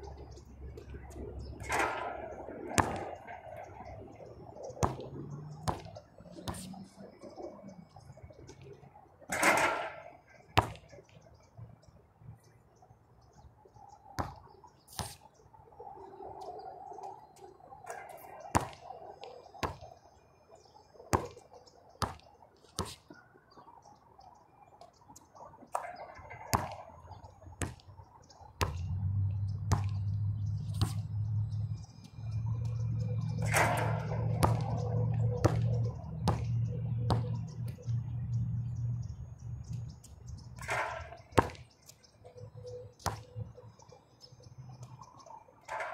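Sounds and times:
basketball striking hoop: 1.6 - 3.2, 4.8 - 5.9, 29.7 - 30.0, 33.4 - 37.4, 40.6 - 41.6
basketball bouncing on hard court: 2.8 - 3.2, 4.8 - 6.7, 18.6 - 18.8, 22.0 - 22.2, 26.5 - 26.8, 27.6 - 27.8, 28.6 - 28.8, 29.7 - 30.1, 33.4 - 37.5, 40.6 - 41.6, 43.0 - 43.3.

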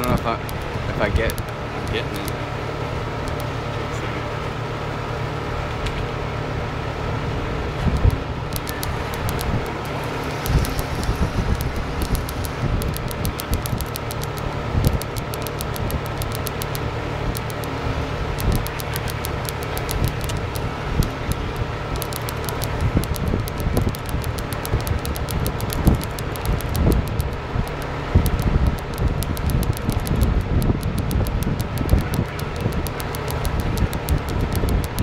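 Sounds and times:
faint steady whine: 0.0 - 35.0
wind buffeting microphone: 7.5 - 35.0.

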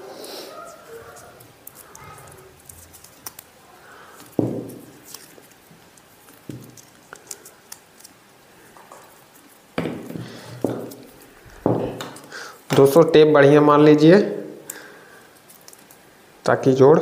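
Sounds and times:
tape crackling as it unwinds: 0.8 - 11.4, 15.3 - 16.1
handling thumps: 4.2 - 5.1, 9.8 - 13.0.

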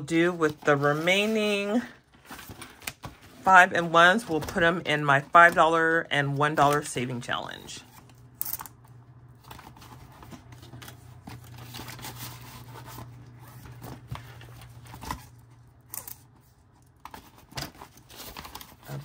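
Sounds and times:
paper rustling: 9.3 - 19.0.

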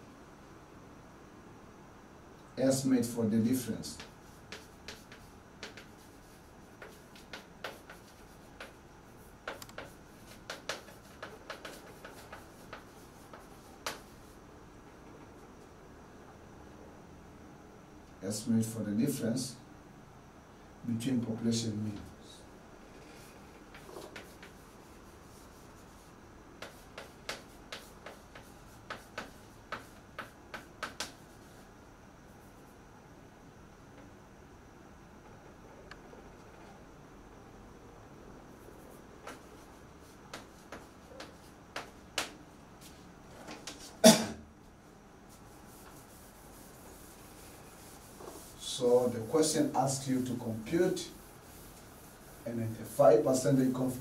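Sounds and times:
chalk tapping on blackboard: 3.5 - 14.4, 23.0 - 31.7, 38.6 - 43.0, 43.6 - 44.0, 45.3 - 53.8.

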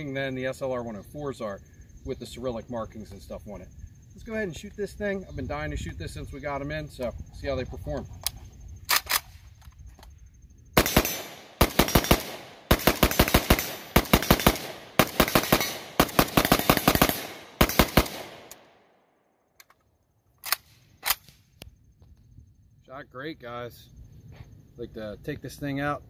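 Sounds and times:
rifle firing shots: 10.8 - 18.8.

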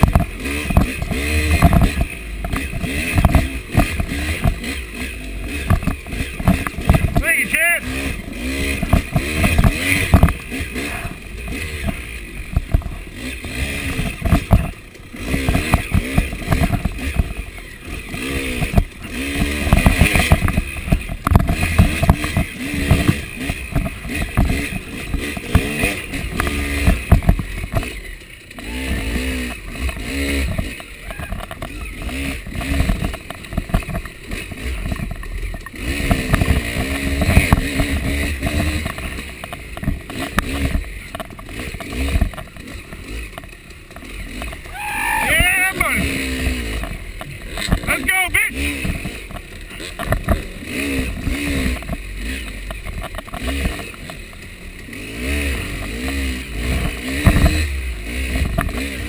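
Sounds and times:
bike knocks and clatter: 0.0 - 7.3, 8.5 - 17.5, 18.1 - 28.0, 28.6 - 44.8, 46.7 - 47.9, 48.6 - 59.0
dirt bike engine revving: 0.0 - 59.0.

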